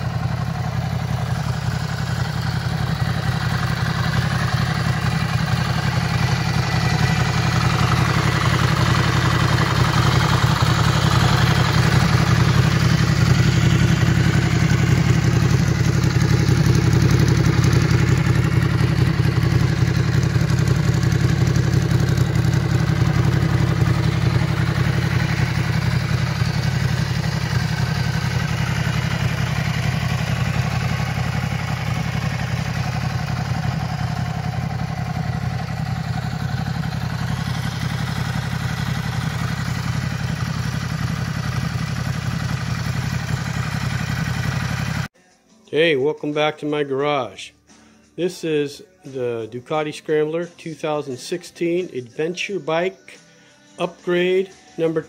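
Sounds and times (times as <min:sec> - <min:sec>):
motorcycle engine idling: 0:00.0 - 0:45.2.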